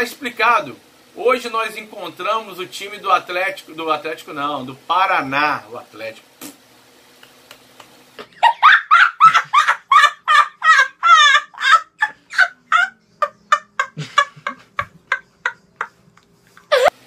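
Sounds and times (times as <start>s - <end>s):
boy laughing: 8.2s - 17.0s.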